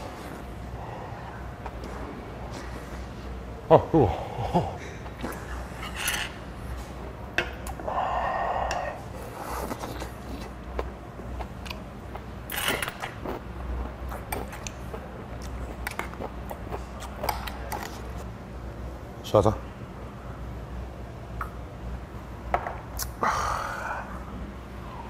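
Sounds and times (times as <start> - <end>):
man huffing breaths: 3.9 - 5.1.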